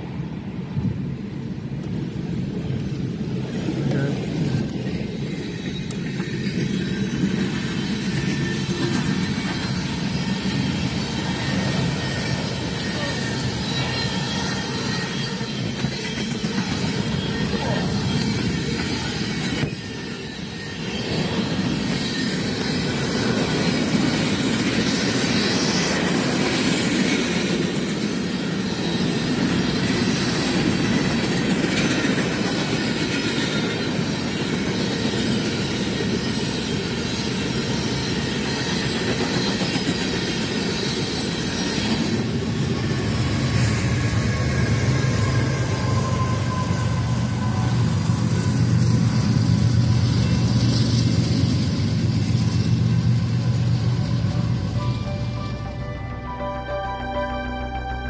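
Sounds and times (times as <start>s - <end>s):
train wheels rumbling on rail: 0.0s - 55.3s
diesel locomotive drone: 0.0s - 58.0s
high wheel squeal: 5.3s - 24.1s, 43.9s - 50.9s.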